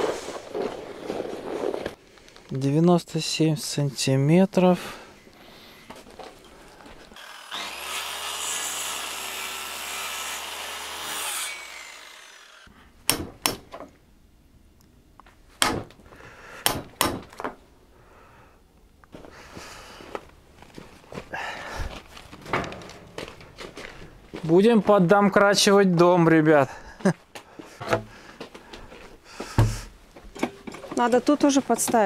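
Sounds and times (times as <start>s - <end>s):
electric saw cutting wood: 7.2s - 12.7s.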